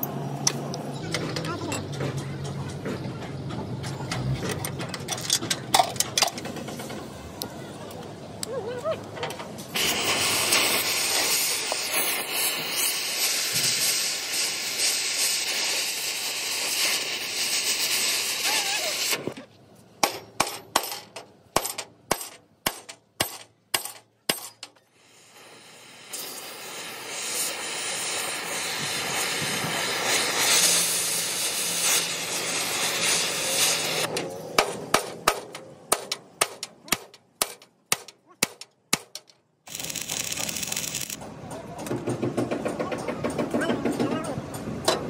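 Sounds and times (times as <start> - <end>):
arc welder crackling: 9.6 - 19.3, 25.0 - 34.4, 35.2 - 41.3
cutting torch hissing: 9.6 - 19.4, 24.9 - 34.1, 39.7 - 41.2.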